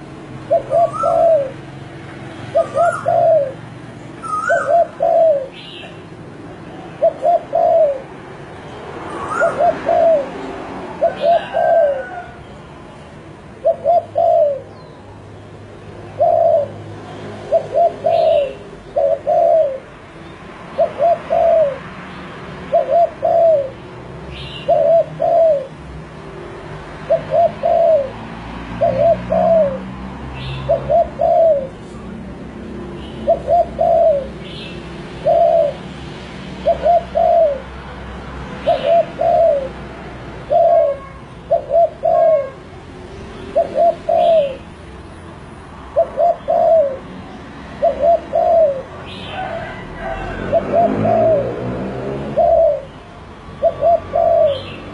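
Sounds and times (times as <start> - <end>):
dove cooing: 0.3 - 1.7, 2.4 - 6.0, 6.8 - 8.2, 9.1 - 12.4, 13.5 - 14.8, 16.0 - 19.9, 20.7 - 21.9, 22.7 - 25.8, 27.0 - 32.1, 33.1 - 35.9, 36.6 - 37.9, 38.6 - 42.7, 43.5 - 44.7, 45.9 - 54.9.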